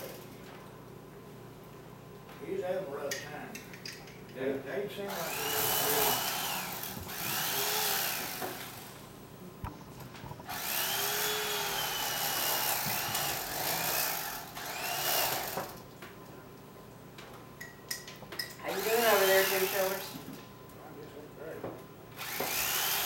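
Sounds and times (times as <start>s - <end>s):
electric carving knife whine: 5.1s - 9.0s, 10.4s - 15.8s, 18.6s - 20.1s, 22.2s - 23.0s.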